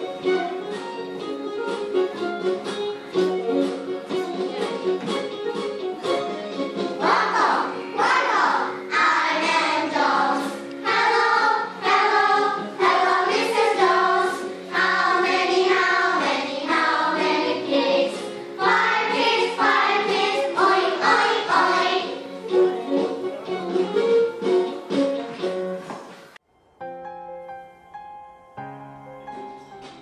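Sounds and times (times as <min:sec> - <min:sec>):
musical backing: 0:00.0 - 0:30.0
children singing in unison: 0:07.0 - 0:22.2.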